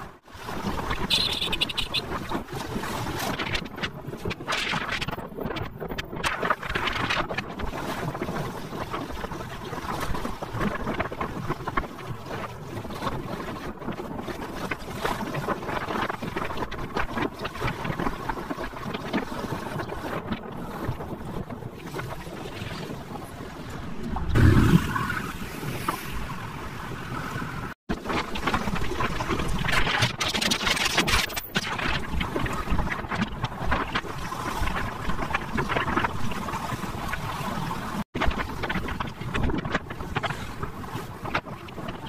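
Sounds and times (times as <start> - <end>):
wind buffeting microphone: 0.0 - 42.0
low rumble: 23.6 - 27.0.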